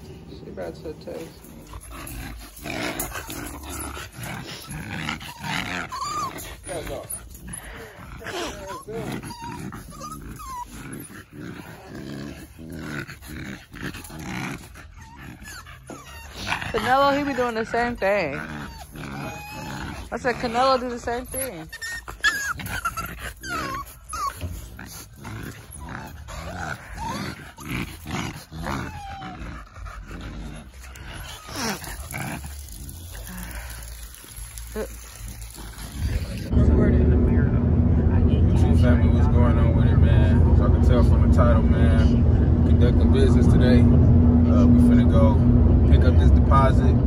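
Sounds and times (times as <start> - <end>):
puppies play-growling: 0.0 - 36.6, 37.2 - 46.9
puppy whimpers: 2.8 - 11.9, 14.0 - 30.0, 30.6 - 32.1.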